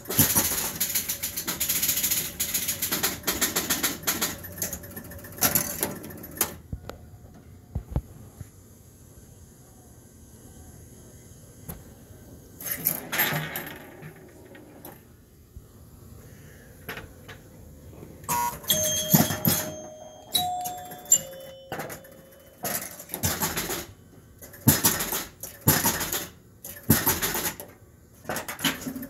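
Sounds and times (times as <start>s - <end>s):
pinball relay clatter: 0.0s - 6.6s, 12.6s - 15.0s, 18.3s - 29.0s
pinball score chimes ringing: 18.3s - 24.0s.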